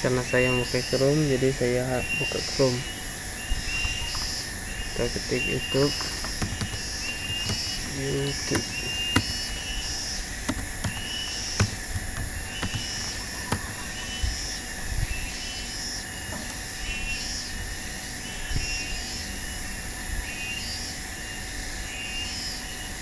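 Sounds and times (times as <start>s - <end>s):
keyboard and mouse clicking: 3.8s - 4.4s, 5.0s - 9.8s, 10.4s - 14.1s.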